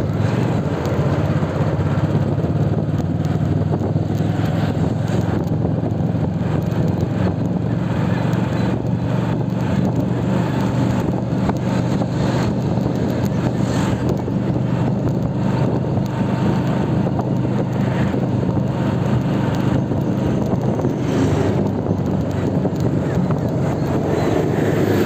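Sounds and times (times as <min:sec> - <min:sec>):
motorcycle engine drone: 0:00.0 - 0:25.0
road and wind noise: 0:00.0 - 0:25.0.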